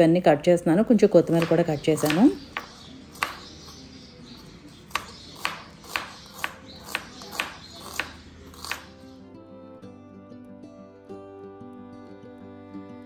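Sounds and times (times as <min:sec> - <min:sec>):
knife slicing onion on board: 0:01.2 - 0:09.1.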